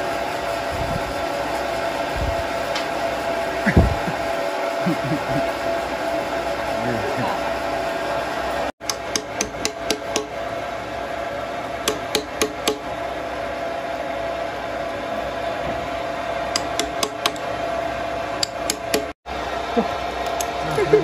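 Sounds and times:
steady machine hum: 0.0s - 21.0s
hammer tapping on timber: 8.8s - 10.3s, 11.9s - 12.8s, 16.6s - 17.4s.

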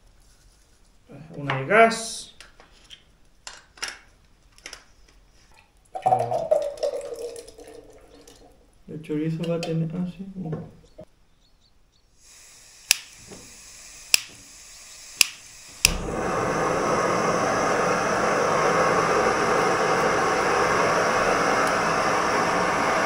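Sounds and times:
faint gas hiss: 12.1s - 23.0s
gas burner rushing: 12.2s - 23.0s
igniter clicks: 12.8s - 16.2s.

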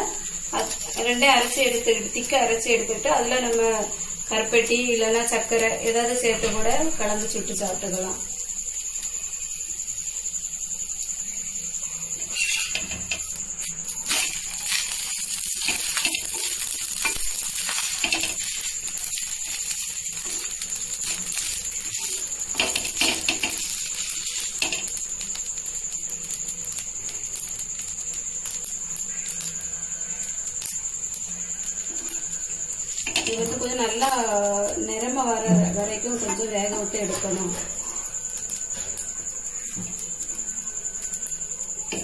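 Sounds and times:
batter sizzling on hot pan: 0.0s - 42.0s.

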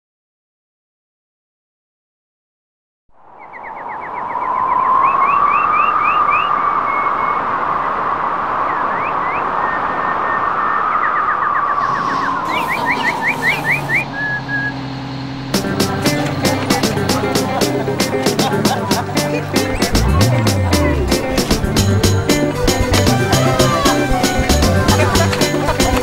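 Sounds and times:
bird chirps: 3.3s - 8.0s, 8.6s - 15.5s
whistled notes: 3.5s - 17.0s
low bass music: 15.4s - 26.0s.

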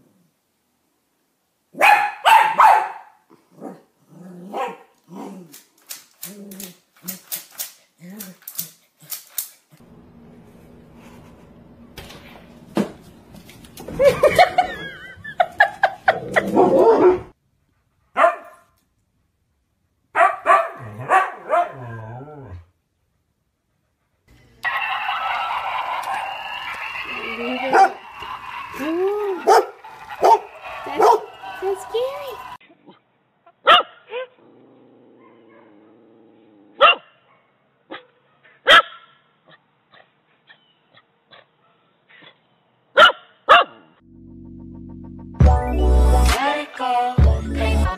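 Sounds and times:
dog barking: 1.8s - 3.8s, 4.5s - 4.9s, 16.6s - 17.3s, 18.2s - 18.7s, 20.1s - 22.0s, 27.7s - 28.0s, 29.4s - 31.3s, 33.6s - 34.3s, 35.2s - 35.8s, 36.8s - 39.6s, 43.0s - 44.0s.

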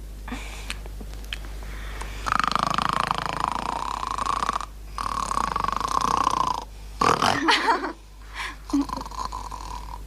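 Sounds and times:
girl snoring: 2.2s - 7.6s, 8.4s - 10.0s.

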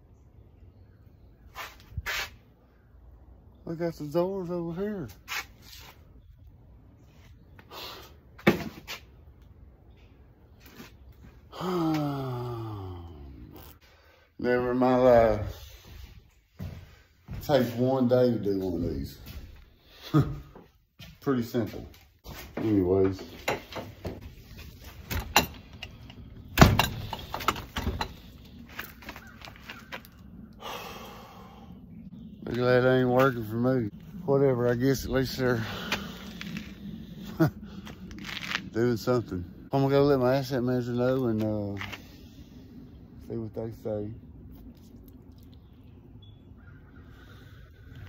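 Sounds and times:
knocks and clatter: 25.0s - 28.3s.

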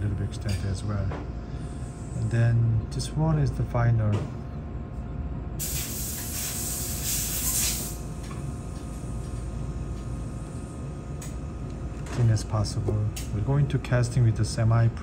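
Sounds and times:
steady low hum: 0.0s - 15.0s
pressurised jet hissing: 5.6s - 8.0s.

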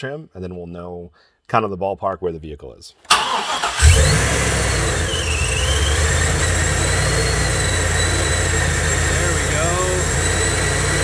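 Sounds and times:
engine starting and rumbling: 3.1s - 11.0s
high whine: 4.8s - 11.0s.

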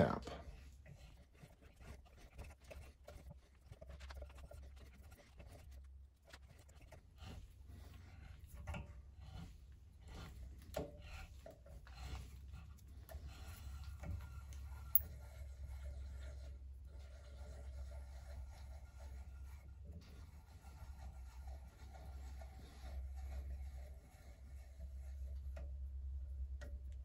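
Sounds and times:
tap scraping and clicking in metal: 8.1s - 19.6s, 21.0s - 25.8s.

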